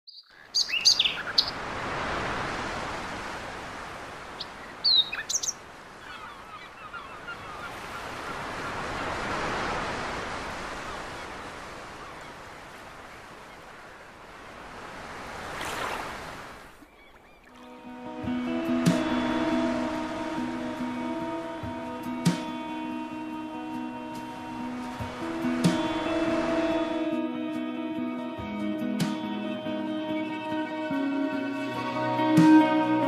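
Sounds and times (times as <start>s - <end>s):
small birds chirping: 0.1s - 1.6s, 4.4s - 8.5s, 16.8s - 17.6s
sea waves washing: 0.7s - 28.2s.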